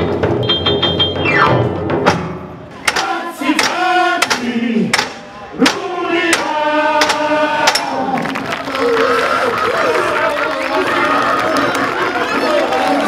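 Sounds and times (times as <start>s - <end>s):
voices calling out in long cries: 6.6s - 13.0s.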